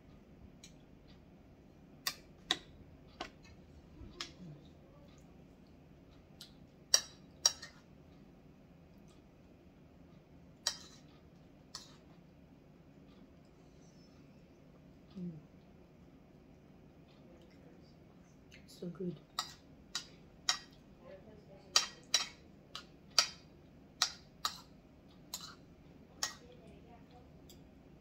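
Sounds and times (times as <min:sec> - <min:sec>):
spoon clicking against bowl: 0:21.8 - 0:23.4.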